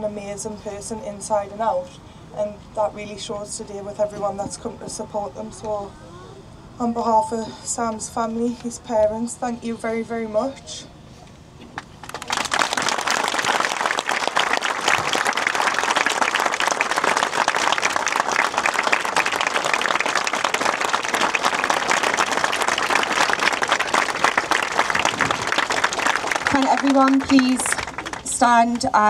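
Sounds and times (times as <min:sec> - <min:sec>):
large crowd applauding: 0:12.0 - 0:29.0.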